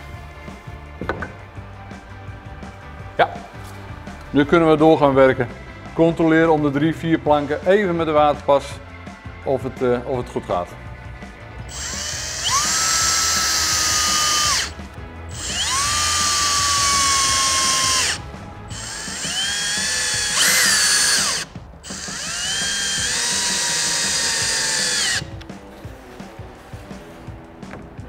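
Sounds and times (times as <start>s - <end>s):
cordless drill driving screws: 11.7s - 25.4s.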